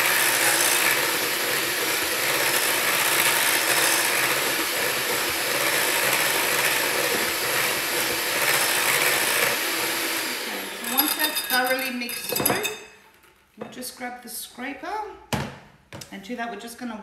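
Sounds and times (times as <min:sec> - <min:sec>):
electric hand mixer whisking: 0:00.0 - 0:12.0.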